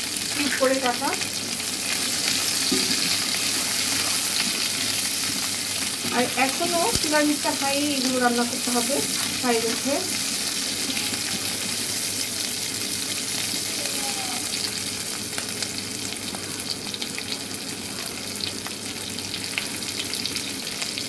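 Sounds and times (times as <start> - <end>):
vegetables sizzling in oil: 0.0 - 21.0
spatula stirring in pan: 1.4 - 13.2.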